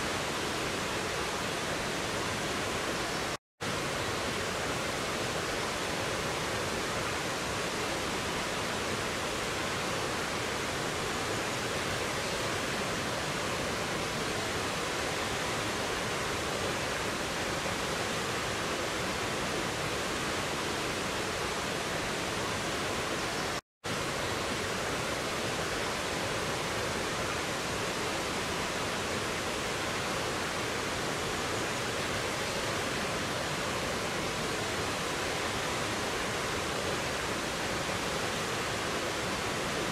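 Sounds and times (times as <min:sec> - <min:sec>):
water rushing over rocks: 0:23.9 - 0:39.9.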